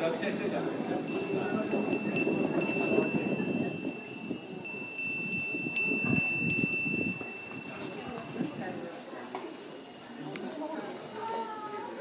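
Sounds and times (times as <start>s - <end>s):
low background murmur: 0.0s - 12.0s
metal wind chime ringing: 1.0s - 10.0s.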